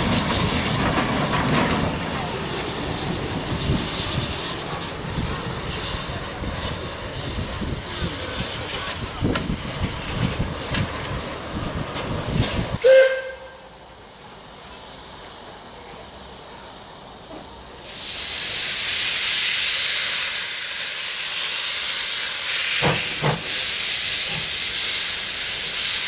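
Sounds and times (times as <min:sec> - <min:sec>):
steam locomotive exhaust chuffs: 0:00.0 - 0:13.7, 0:16.7 - 0:26.0
rail noise: 0:00.0 - 0:26.0
steam hiss: 0:00.0 - 0:26.0
steam whistle blast: 0:12.8 - 0:13.7.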